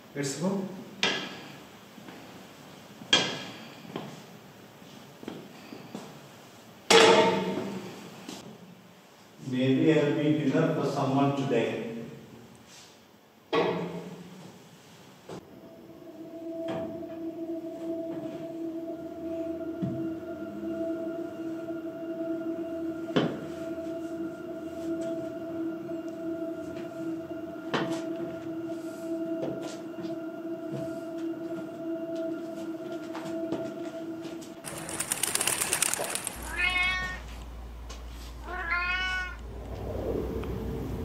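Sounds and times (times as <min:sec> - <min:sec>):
steady low hum: 0:15.4 - 0:38.5
cat meowing: 0:36.4 - 0:37.3, 0:38.4 - 0:39.4.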